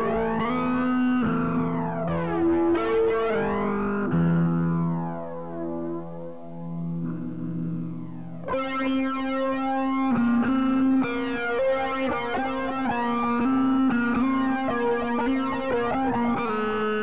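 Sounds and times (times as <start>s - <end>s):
fuzz electric guitar: 0.0s - 17.0s.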